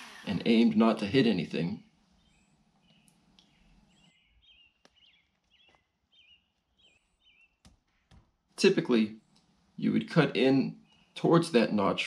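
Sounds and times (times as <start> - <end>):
small bird chirping: 2.1 - 8.4, 10.7 - 11.2.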